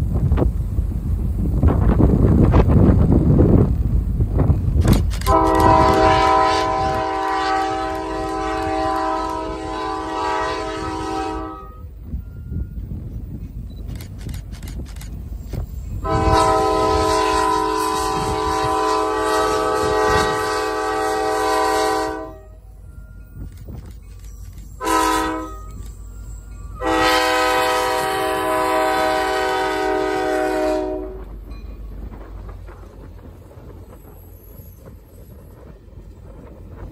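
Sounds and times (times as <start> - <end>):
train rumble: 0.0 - 36.9
locomotive air horn blasts: 5.2 - 11.9, 16.0 - 22.6, 24.8 - 25.8, 26.8 - 31.3.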